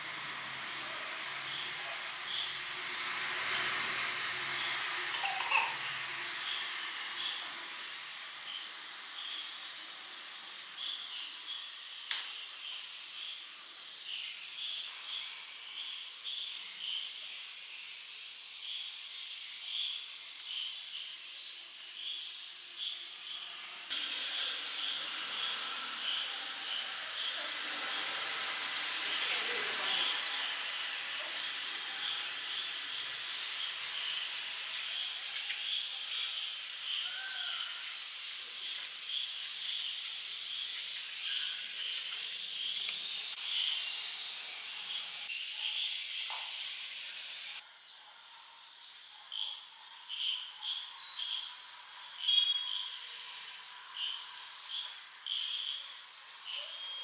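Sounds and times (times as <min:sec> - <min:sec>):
crickets chirping: 0:05.6 - 0:57.0
loud even hiss: 0:23.8 - 0:45.4.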